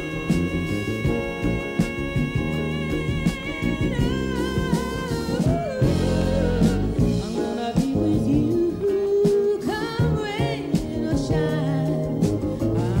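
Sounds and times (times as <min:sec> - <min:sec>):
live band with drums: 0:00.0 - 0:13.0
woman singing a ballad: 0:00.0 - 0:13.0.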